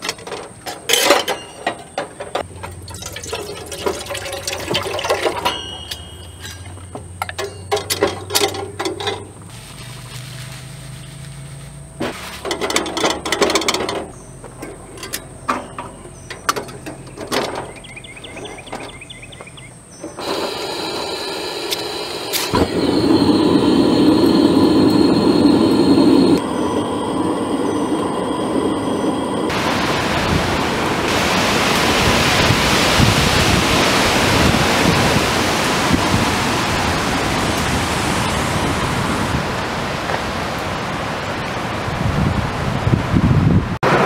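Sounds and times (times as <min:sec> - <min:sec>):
pouring into a pot: 0:02.7 - 0:05.8
gas burner hissing: 0:20.0 - 0:33.6.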